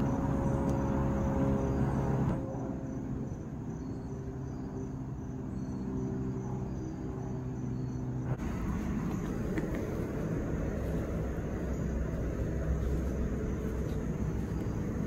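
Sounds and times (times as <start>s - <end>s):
faint insect chirps: 0.0s - 15.0s
steady low hum: 0.0s - 15.0s
rough rustling noise: 8.4s - 15.0s.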